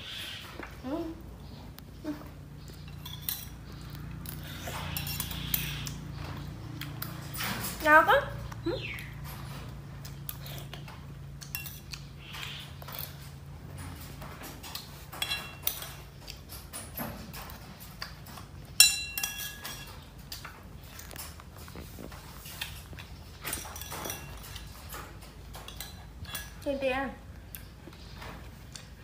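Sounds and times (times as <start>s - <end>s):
spoon clinking on ceramic bowl: 18.8s - 19.9s.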